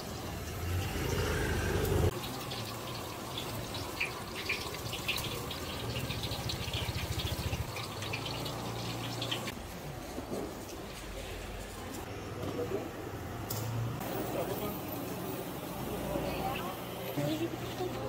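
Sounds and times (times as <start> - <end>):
glaze sizzling and crackling: 0.0 - 12.1.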